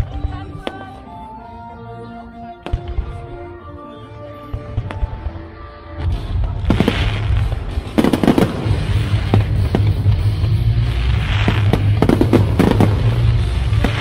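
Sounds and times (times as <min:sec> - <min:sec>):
fireworks bangs and crackling: 0:02.6 - 0:03.6, 0:04.4 - 0:14.0
music with heavy bass: 0:06.0 - 0:14.0.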